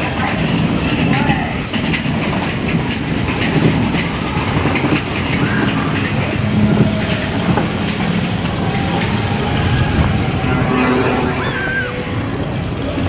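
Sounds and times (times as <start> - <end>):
roller coaster rattling on track: 0.0 - 13.0
wheels clacking on rails: 0.0 - 13.0.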